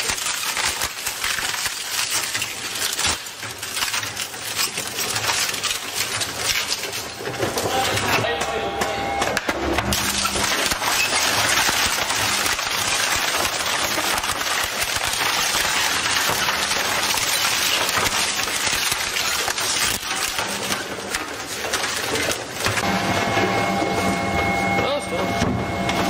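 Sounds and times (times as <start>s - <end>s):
shredder tearing wooden boards: 0.0s - 26.0s.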